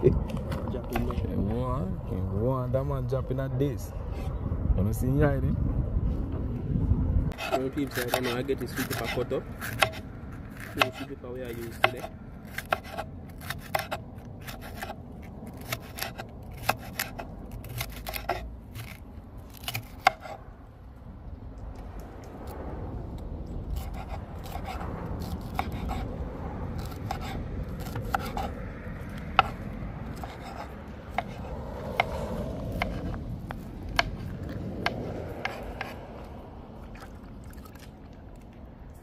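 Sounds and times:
knife chopping on cutting board: 0:07.4 - 0:10.0, 0:10.6 - 0:11.1.

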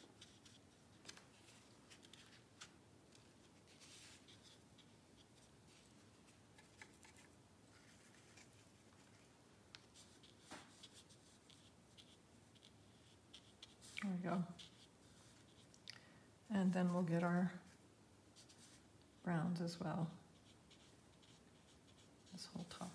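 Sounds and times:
brush scratching on paper: 0:03.4 - 0:15.7, 0:16.7 - 0:18.8, 0:20.0 - 0:22.9.

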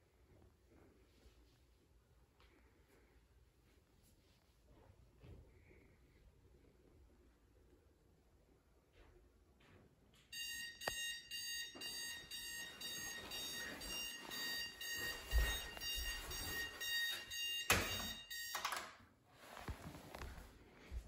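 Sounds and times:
alarm clock beeping: 0:10.3 - 0:19.0
rustling of movement: 0:11.9 - 0:17.4, 0:19.3 - 0:21.0.

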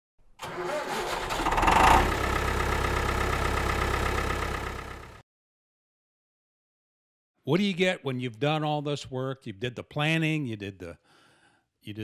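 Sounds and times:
engine idling: 0:00.5 - 0:05.2.

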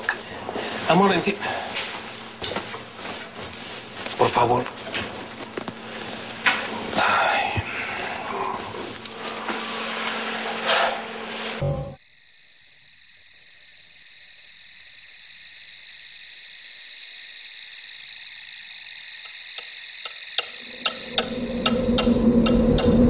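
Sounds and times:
high cricket-like chirring: 0:00.0 - 0:08.8, 0:10.7 - 0:23.0
sharp ticks: 0:15.2 - 0:22.9
low drone: 0:20.5 - 0:23.0.

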